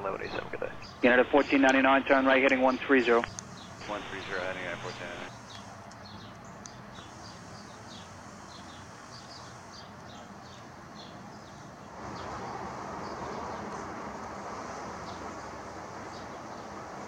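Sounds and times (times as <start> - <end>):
steady outdoor rush: 0.0 - 7.3
small birds chirping: 0.1 - 13.8.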